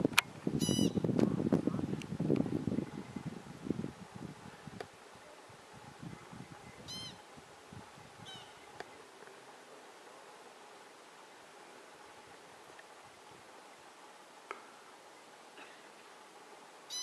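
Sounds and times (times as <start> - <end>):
pika squeaking: 0.6 - 1.0, 6.8 - 7.2.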